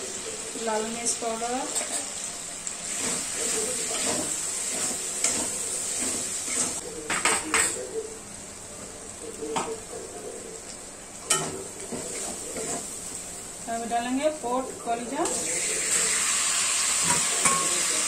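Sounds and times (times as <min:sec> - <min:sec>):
masala sizzling in oil: 0:00.0 - 0:18.0.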